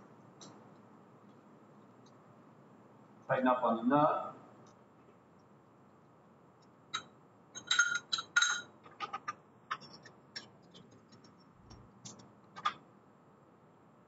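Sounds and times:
metal parts clinking: 7.6 - 10.1.

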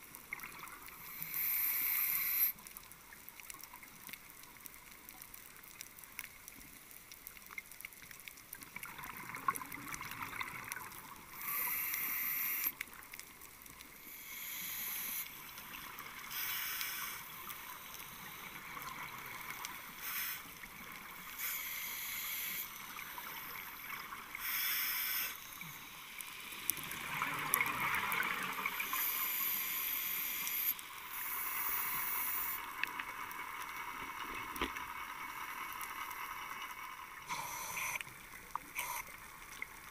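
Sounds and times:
faint underwater hiss: 0.0 - 39.9
scuba regulator hissing: 37.3 - 38.0, 38.8 - 39.1.

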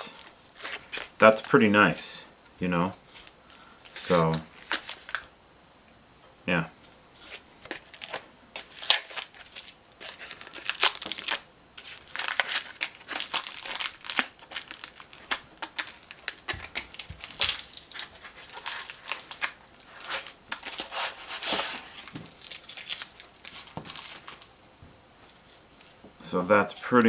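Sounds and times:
paper cover crinkling: 0.0 - 1.5, 3.1 - 5.3, 7.2 - 24.5.

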